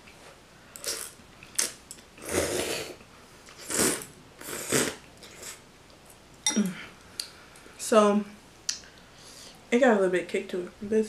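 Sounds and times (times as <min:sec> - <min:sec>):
noodles being slurped: 0:03.6 - 0:05.6.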